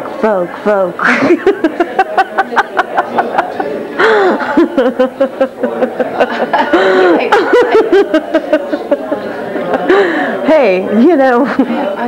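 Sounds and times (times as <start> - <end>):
woman laughing: 1.0 - 3.4, 4.0 - 9.2.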